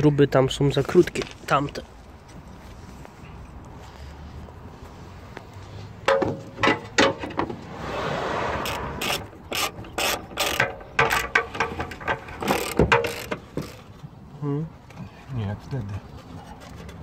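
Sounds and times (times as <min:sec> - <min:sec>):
ratchet wrench clicking: 0:08.7 - 0:11.6, 0:12.4 - 0:13.9.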